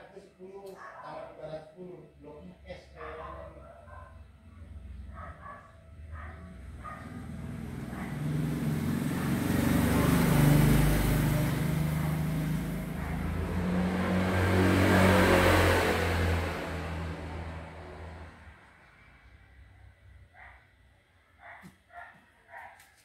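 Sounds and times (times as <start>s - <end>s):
vehicle engine running: 5.9s - 19.1s.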